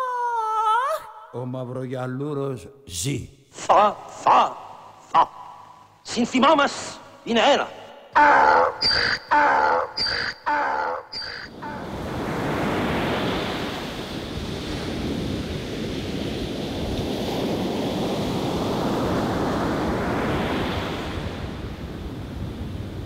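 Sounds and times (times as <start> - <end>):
ocean waves washing in: 11.5 - 23.0.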